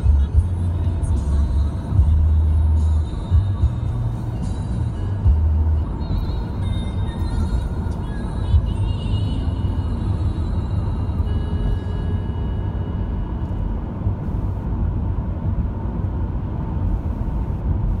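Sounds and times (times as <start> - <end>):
car tyre and engine rumble: 0.0 - 18.0.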